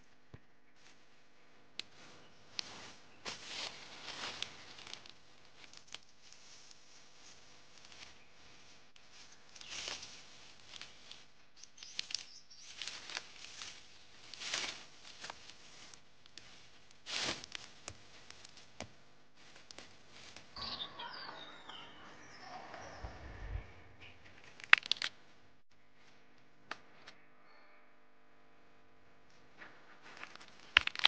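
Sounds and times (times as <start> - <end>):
rustling of dry brush: 1.9 - 20.6
bird chirps: 11.6 - 12.8, 20.6 - 24.3.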